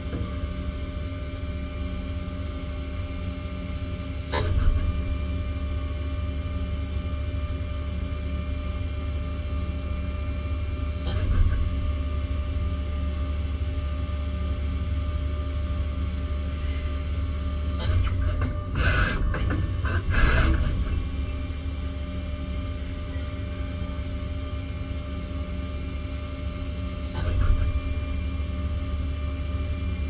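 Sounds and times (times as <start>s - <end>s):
short pneumatic hisses: 17.8s - 21.0s.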